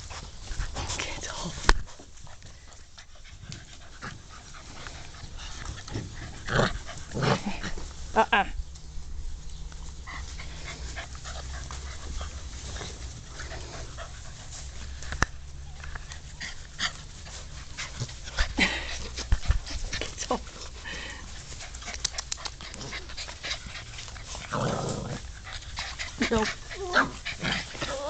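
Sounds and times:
puppies panting: 0.0 - 8.1, 9.6 - 28.0
rustles and scuffles in grass: 0.0 - 22.0.

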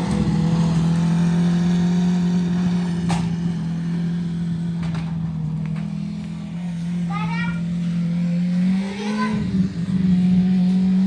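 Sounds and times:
race car engine running: 0.0 - 11.0.

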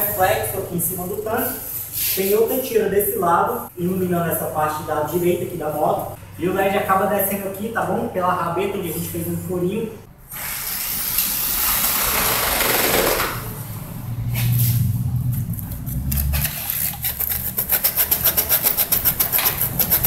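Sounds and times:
electric drill boring through plastic: 10.3 - 13.4.

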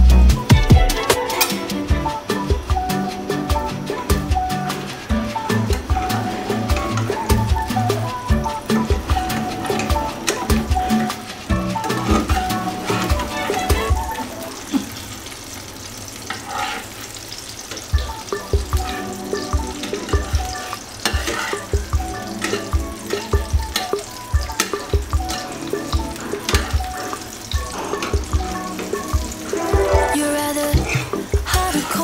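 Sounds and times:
oil sizzling in a frying pan: 0.0 - 32.0
spatula scraping a pan: 16.3 - 17.2, 19.8 - 24.0, 26.2 - 31.2.

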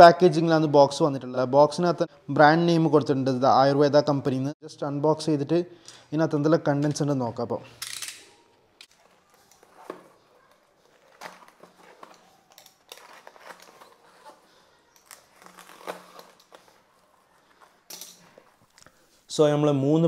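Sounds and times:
cardboard flaps rustling: 9.0 - 14.6.

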